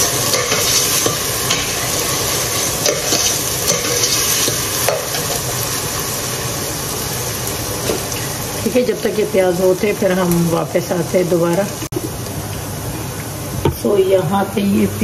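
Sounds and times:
onions sizzling in a pot: 0.0s - 15.0s.

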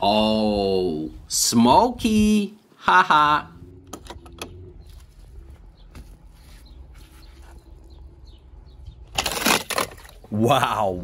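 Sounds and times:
low rumble: 3.4s - 9.2s.

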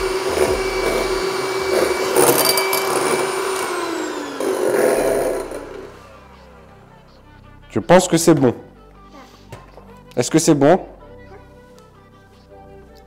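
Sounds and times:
electric hand mixer whining: 0.0s - 7.3s.

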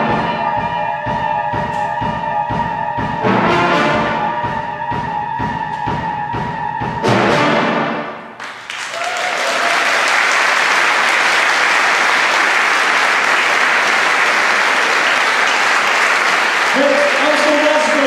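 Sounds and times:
audience applause: 8.4s - 18.0s.

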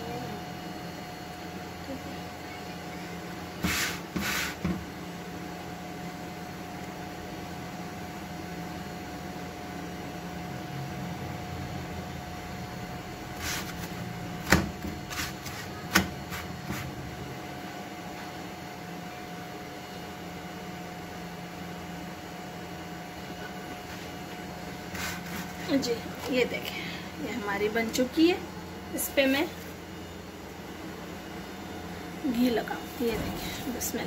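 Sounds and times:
low kitchen hum: 0.0s - 34.0s
flatbread scraping on iron pan: 24.9s - 25.6s.

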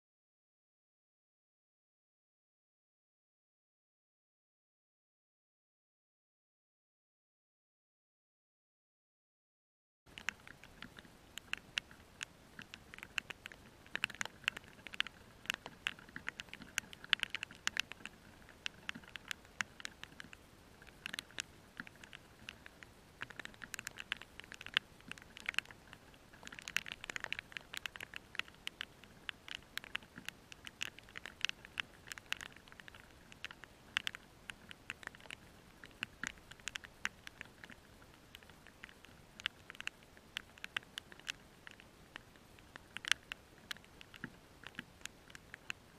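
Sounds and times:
faint background hiss: 10.1s - 45.9s
raindrops ticking: 10.1s - 45.9s.

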